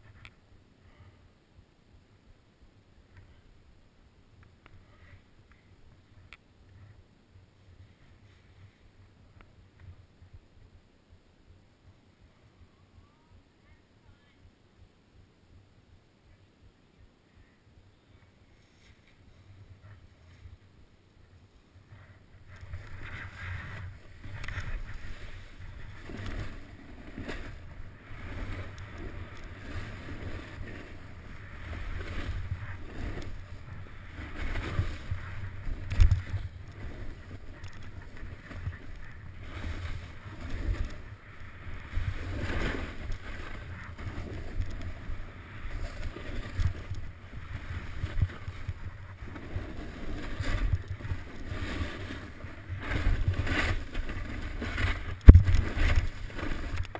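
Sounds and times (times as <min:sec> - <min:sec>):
skis scraping over packed snow: 0:07.6 - 0:09.2, 0:18.2 - 0:56.9
wind rumble on microphone: 0:19.1 - 0:56.9.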